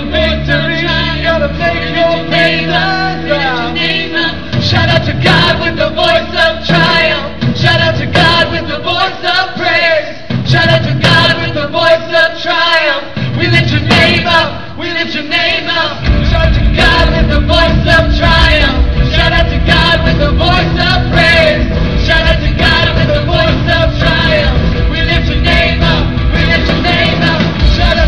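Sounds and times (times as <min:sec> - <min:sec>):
bass guitar: 0:00.0 - 0:09.0, 0:13.2 - 0:14.6, 0:16.0 - 0:28.0
guitars: 0:00.0 - 0:09.0, 0:16.0 - 0:28.0
woman and man singing: 0:00.0 - 0:28.0
drum hits: 0:03.6 - 0:12.1, 0:13.1 - 0:14.8, 0:15.6 - 0:28.0.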